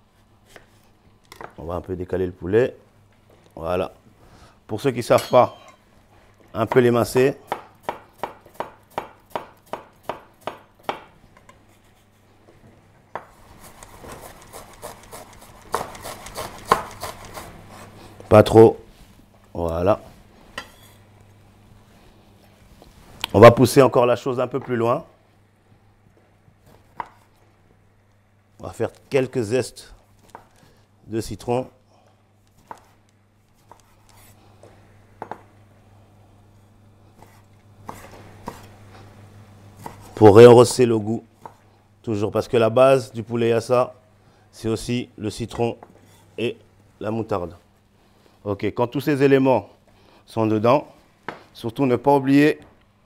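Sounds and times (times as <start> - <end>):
steady low hum: 0.0 - 53.0
knife slicing onion on board: 6.7 - 11.1, 13.2 - 18.0, 32.4 - 34.4, 37.2 - 38.8
grater scraping: 13.6 - 17.9
knife scraping and tapping: 20.6 - 21.0.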